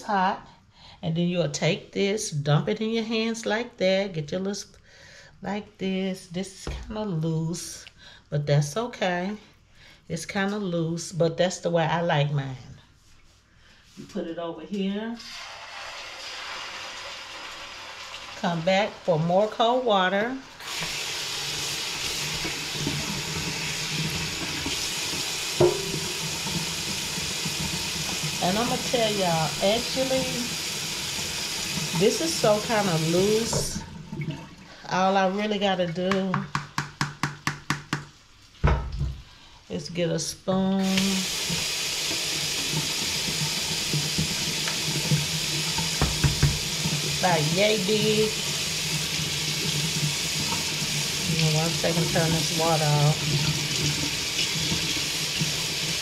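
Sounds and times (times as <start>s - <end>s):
faucet water running into sink: 15.2s - 19.8s, 20.5s - 34.8s, 40.8s - 56.0s
tap running into metal sink: 22.1s - 28.4s, 41.4s - 47.1s
sharp knock: 25.6s - 26.2s.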